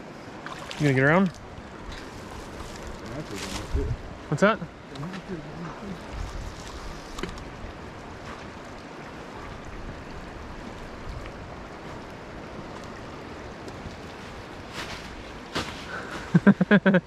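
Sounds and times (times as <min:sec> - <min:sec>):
river rushing: 0:00.0 - 0:17.0.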